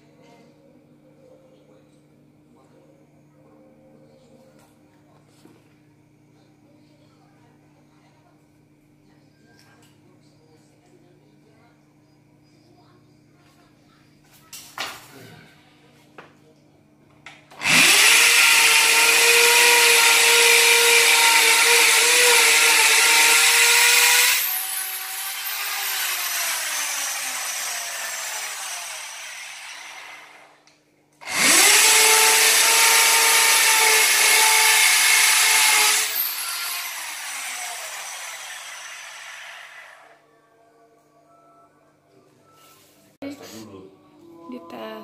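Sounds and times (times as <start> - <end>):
electric drill boring into wall: 17.5 - 30.6, 31.2 - 40.2.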